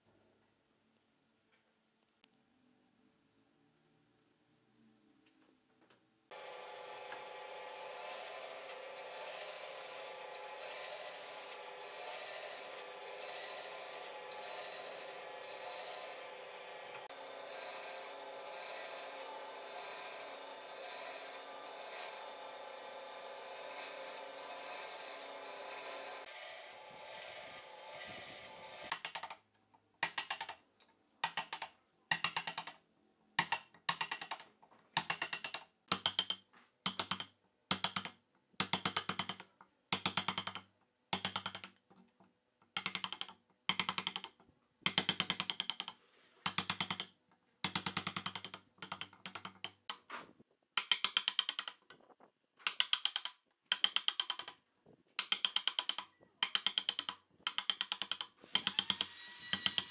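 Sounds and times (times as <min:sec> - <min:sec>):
chisel splitting wood crackling: 0:06.6 - 0:26.6, 0:50.8 - 0:54.6, 0:55.2 - 0:59.9.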